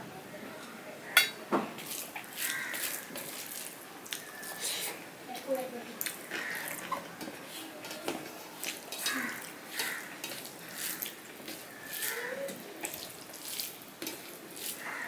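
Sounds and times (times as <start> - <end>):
hand squishing rice on plate: 1.8 - 4.6, 6.0 - 15.0.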